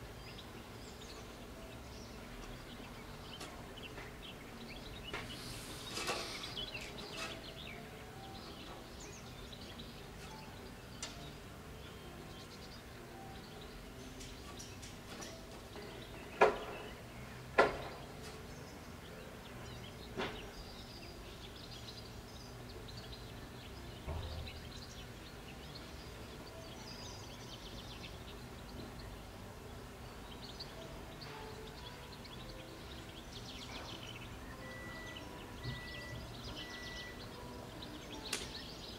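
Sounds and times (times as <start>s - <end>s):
faint bird chirps: 0.0s - 38.9s
outdoor background noise: 0.0s - 38.9s
sharp knocks: 17.6s - 18.1s, 24.1s - 24.8s.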